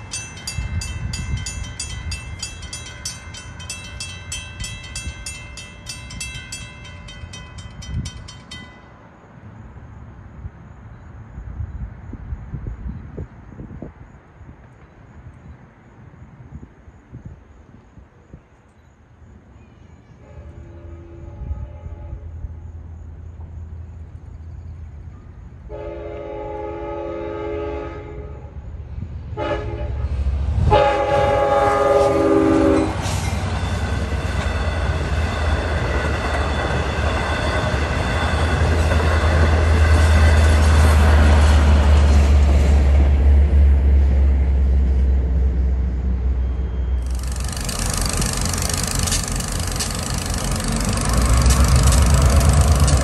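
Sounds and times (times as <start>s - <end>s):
train passing with deep rumble: 0.0s - 53.0s
train horn blasts: 20.2s - 22.5s, 25.7s - 28.6s, 29.4s - 35.6s.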